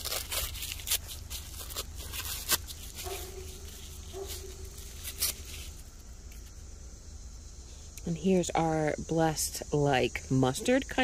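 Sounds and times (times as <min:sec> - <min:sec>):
paper crinkling and crackling: 0:00.0 - 0:06.6.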